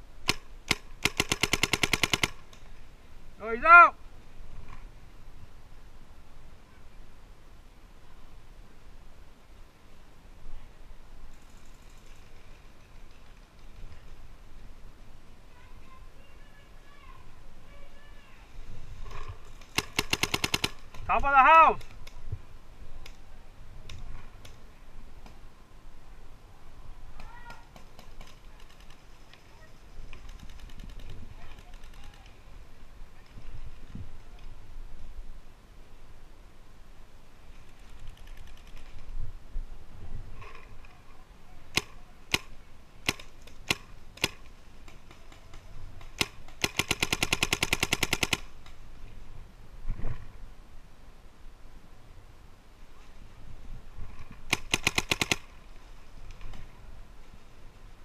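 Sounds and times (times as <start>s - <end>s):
paintball markers firing: 0.2s - 2.6s, 19.6s - 21.0s, 41.7s - 48.5s, 54.5s - 55.5s.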